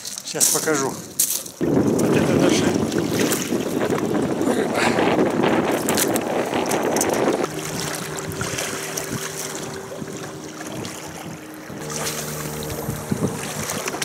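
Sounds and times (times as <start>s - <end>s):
wind buffeting microphone: 1.6s - 14.0s
steady hum of held pitches: 3.8s - 14.0s.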